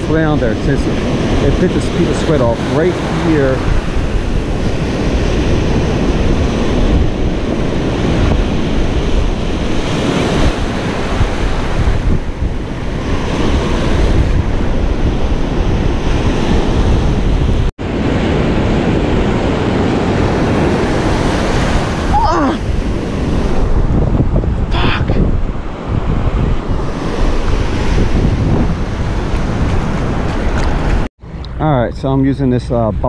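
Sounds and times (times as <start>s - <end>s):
ocean surf breaking on sand: 0.0s - 31.1s
wind buffeting microphone: 0.0s - 33.0s.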